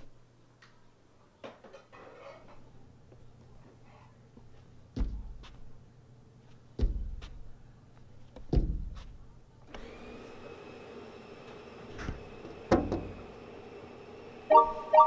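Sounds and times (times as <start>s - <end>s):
heavy thumps on glass door: 8.5s - 9.0s
steady hum with held tones: 12.9s - 15.0s.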